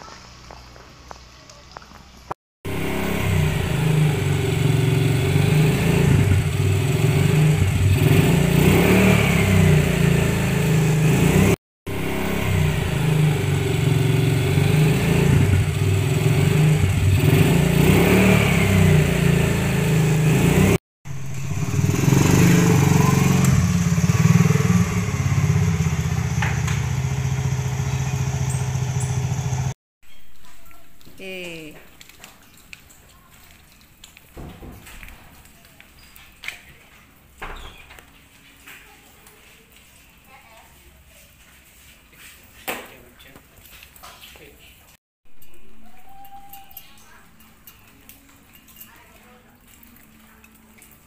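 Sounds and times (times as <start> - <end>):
motorcycle engine idling: 21.1 - 29.8.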